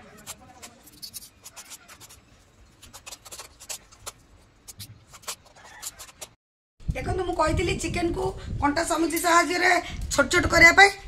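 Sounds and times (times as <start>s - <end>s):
forks scraping a metal bowl: 0.0s - 6.4s.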